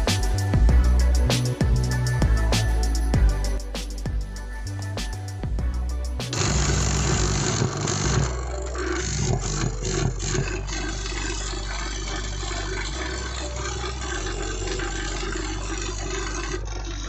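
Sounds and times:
vacuum pump motor running: 6.3s - 17.0s.

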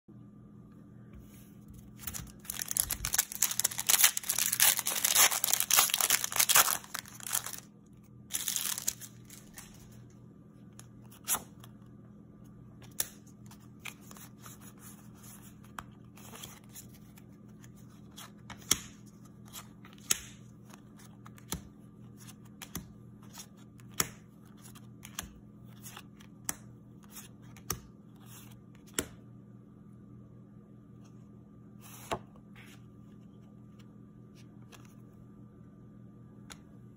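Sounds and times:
faint steady hum: 0.1s - 36.9s
foil wrapper crinkling and tearing: 2.0s - 7.7s, 8.3s - 9.8s.

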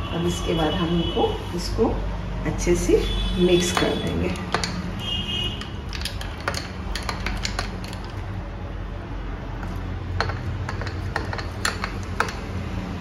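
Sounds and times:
spoon clinking ice and glass: 5.6s - 8.2s, 10.2s - 12.4s.

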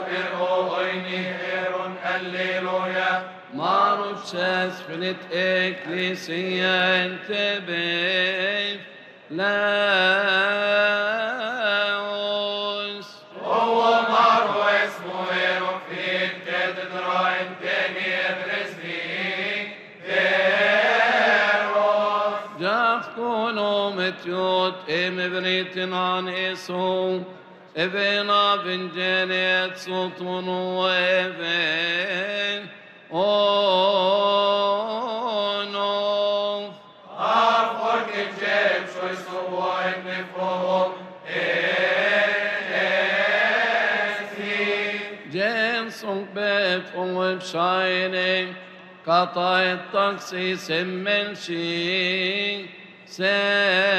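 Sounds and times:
group of men chanting: 0.0s - 4.7s, 37.1s - 45.3s
men chanting liturgical chant: 0.0s - 8.8s, 9.4s - 53.9s.

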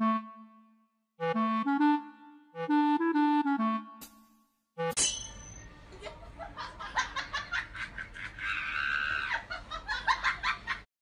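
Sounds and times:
person laughing: 5.9s - 10.2s.

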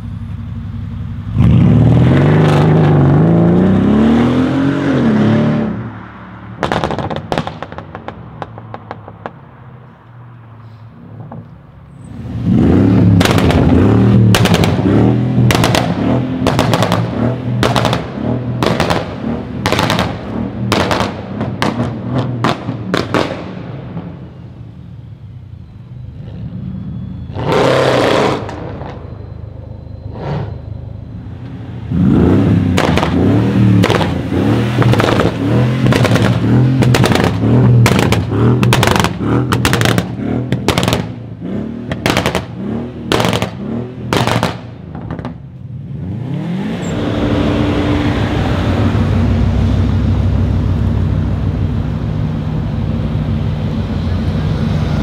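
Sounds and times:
car engine accelerating: 26.0s - 55.0s
exhaust cracks and bangs: 32.7s - 33.2s, 33.8s - 41.2s.

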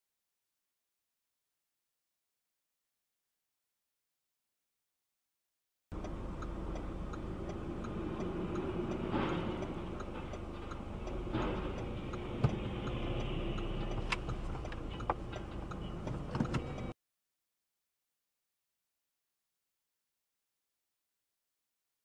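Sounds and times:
car engine and road hum: 5.9s - 17.0s
faint regular ticking: 6.0s - 16.9s
passing vehicle noise: 6.0s - 17.0s.

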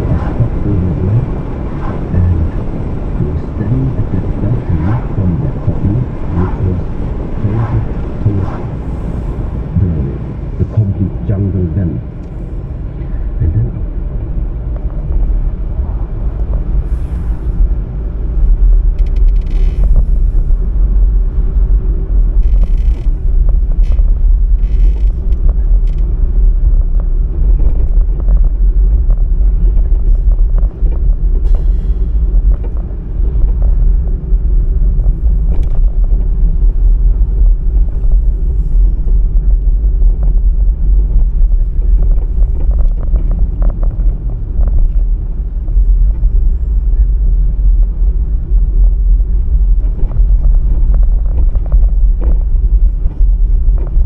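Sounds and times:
car driving on road: 0.0s - 54.0s
passing traffic swishes: 0.0s - 54.0s.

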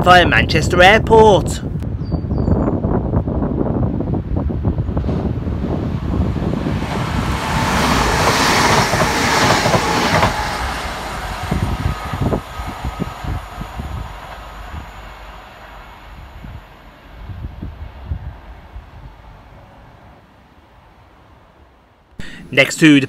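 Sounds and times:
train wheels rushing: 4.5s - 20.1s
faint steady whine: 10.3s - 22.2s.

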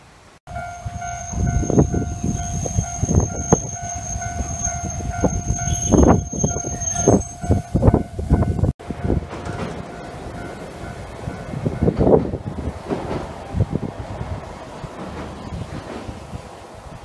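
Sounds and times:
level crossing alarm ringing: 0.5s - 12.0s
tram wheels clunking over rail joints: 0.5s - 17.0s.

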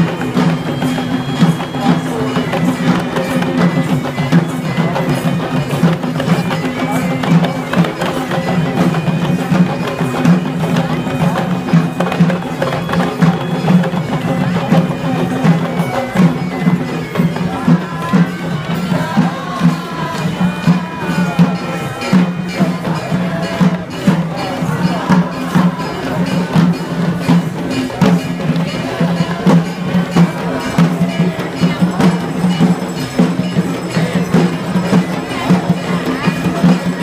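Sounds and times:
drums in fast rhythm: 0.0s - 37.0s.

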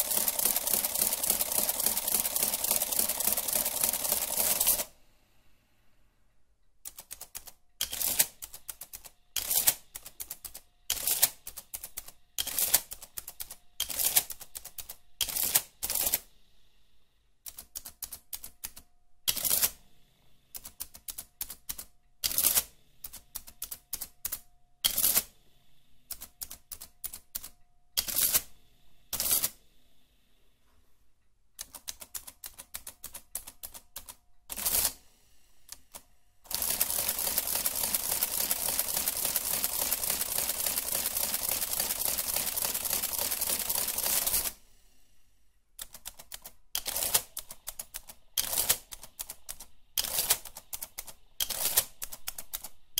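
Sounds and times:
adding machine clicking: 0.0s - 4.9s, 45.8s - 52.8s.

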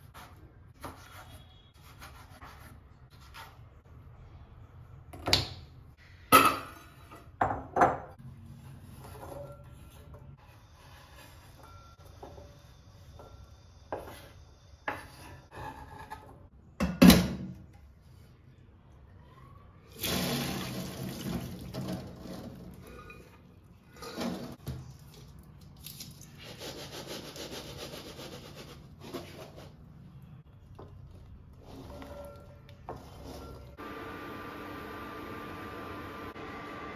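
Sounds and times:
water pouring into metal sink: 20.0s - 22.8s.

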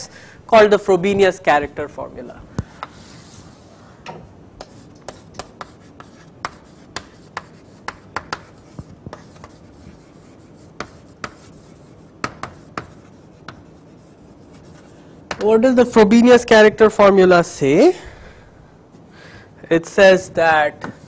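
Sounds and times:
chalk tapping and scraping on blackboard: 2.6s - 3.7s, 4.6s - 15.6s, 20.8s - 21.0s.

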